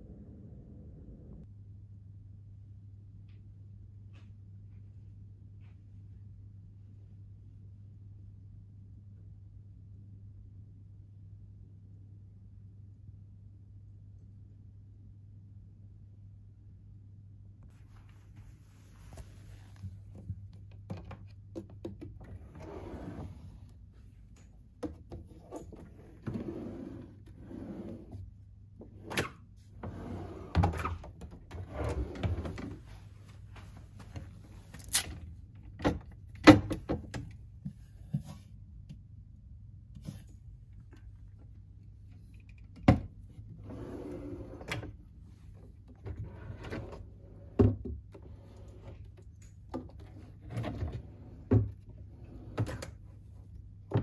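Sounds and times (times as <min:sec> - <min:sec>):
steady low hum: 0:00.0 - 0:20.7
wooden drawers sliding: 0:22.4 - 0:23.5.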